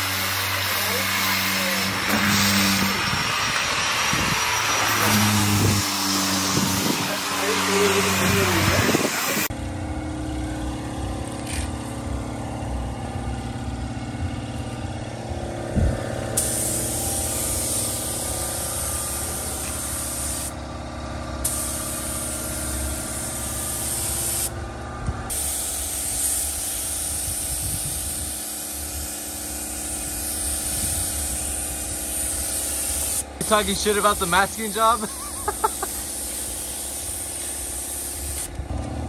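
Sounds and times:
spray gun hissing: 0.0s - 9.5s, 16.4s - 20.6s, 21.4s - 24.5s, 25.3s - 38.6s
steady mechanical hum: 0.0s - 39.0s.

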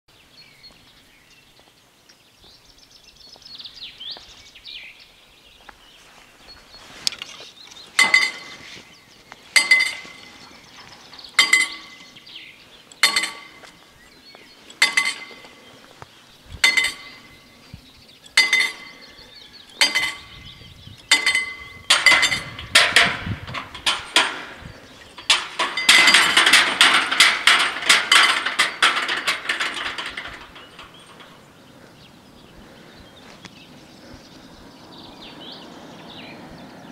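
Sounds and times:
bird chirps: 0.1s - 22.6s, 30.6s - 36.9s
level crossing warning bell: 9.6s - 12.2s, 21.1s - 22.7s.

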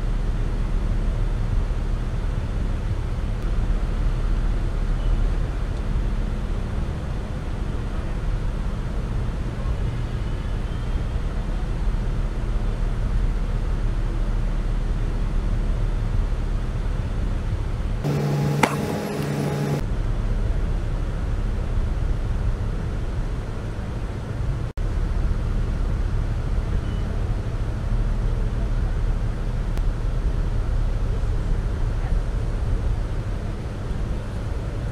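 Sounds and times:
wind: 0.0s - 34.9s
boat engine drone: 17.6s - 34.9s.

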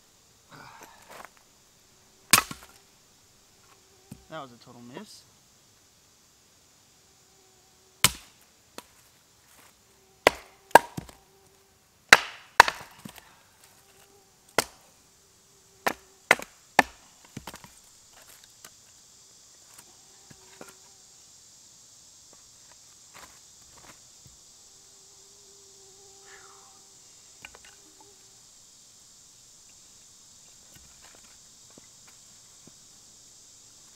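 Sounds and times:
hatchet chopping wood: 2.3s - 2.7s, 8.0s - 8.9s, 10.2s - 11.2s, 12.1s - 13.2s, 14.6s - 14.8s, 15.8s - 17.7s.

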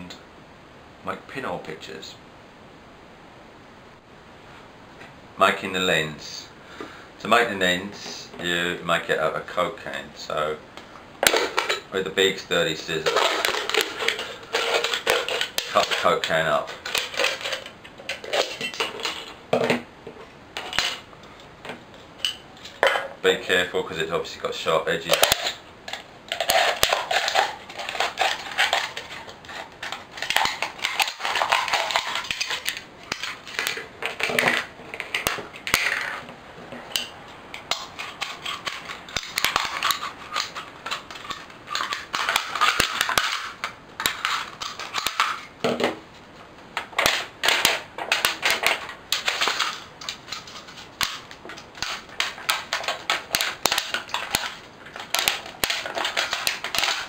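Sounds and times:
metal can crinkling: 13.0s - 19.4s, 25.0s - 36.0s, 37.7s - 45.5s, 47.0s - 57.0s.

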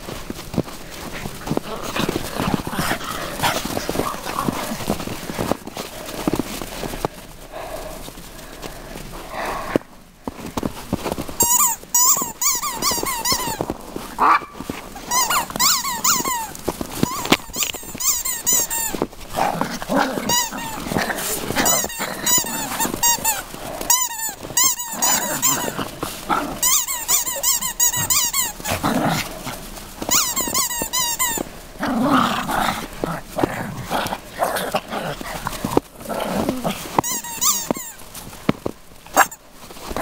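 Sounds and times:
small dogs yipping and barking: 11.4s - 13.6s, 14.2s - 19.0s, 20.3s - 25.9s, 26.5s - 28.8s, 29.6s - 31.4s, 36.5s - 38.2s, 39.1s - 39.4s.

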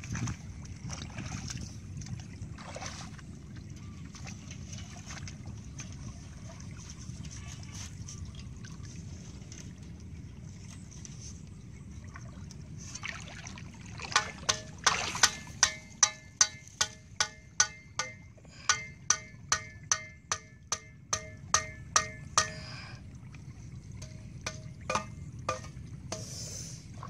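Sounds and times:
water sloshing: 0.0s - 27.0s
metal tool knocking: 14.2s - 22.6s, 24.0s - 26.3s.

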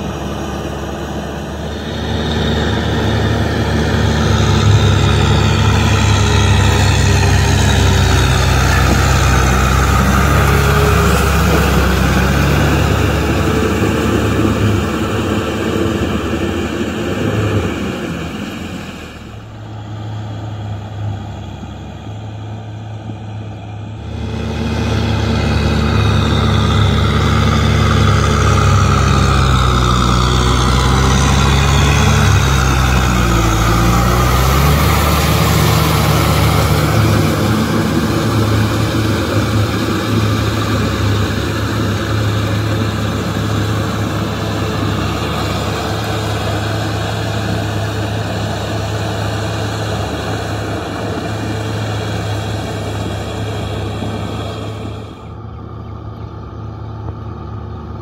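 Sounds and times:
tractor diesel engine running: 0.0s - 58.0s
tractor tilling through wet mud: 0.0s - 58.0s.

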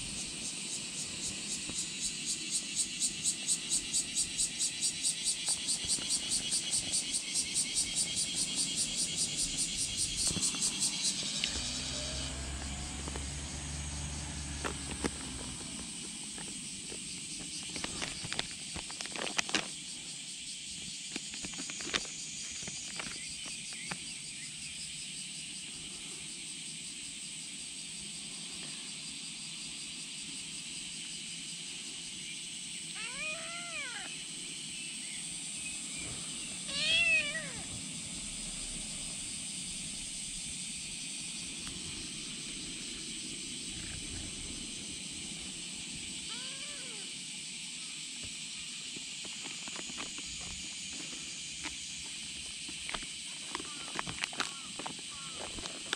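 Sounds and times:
kitten meowing: 33.0s - 34.1s, 36.7s - 37.7s, 46.3s - 47.1s.

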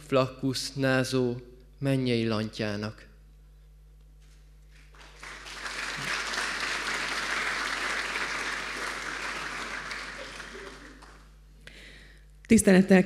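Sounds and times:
audience applauding: 4.7s - 11.4s.

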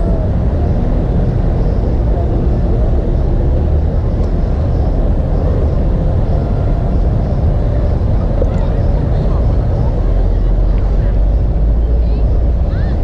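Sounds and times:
city traffic rumble: 0.0s - 13.0s.

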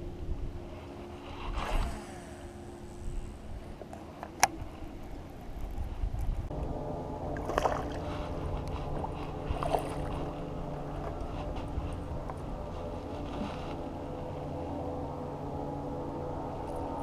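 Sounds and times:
boat motor humming: 0.0s - 17.0s
fish splashing in water: 7.4s - 8.1s.

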